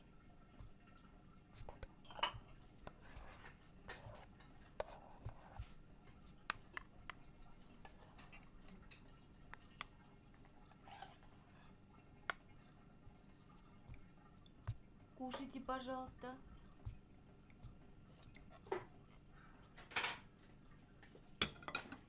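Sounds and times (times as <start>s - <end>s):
dishes and cutlery clinking: 2.0s - 2.6s, 19.7s - 20.3s, 21.4s - 22.0s.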